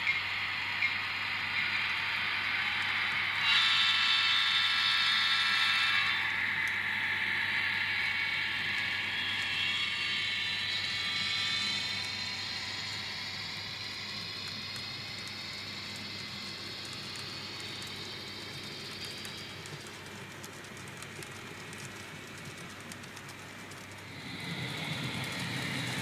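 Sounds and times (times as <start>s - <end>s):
model train wheels rattling: 13.7s - 26.0s.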